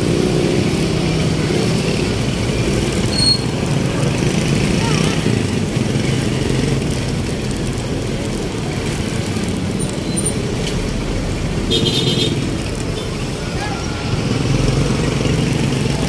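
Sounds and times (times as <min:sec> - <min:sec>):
street traffic rumble: 0:00.0 - 0:16.0.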